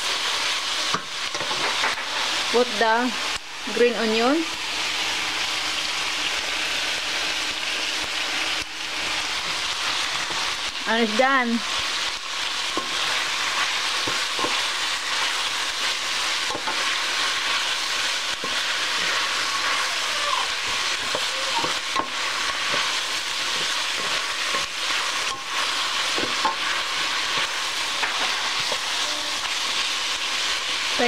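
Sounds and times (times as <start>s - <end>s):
stir-fry sizzling in a skillet: 0.0s - 31.0s
spatula scraping a pan: 12.6s - 19.9s, 20.6s - 29.8s.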